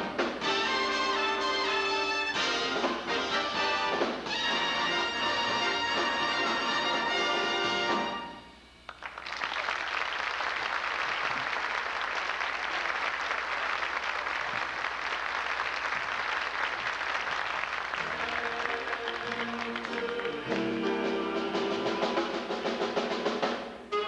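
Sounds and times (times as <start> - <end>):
big band music: 0.0 - 8.6, 17.9 - 24.0
audience applauding: 8.9 - 22.6.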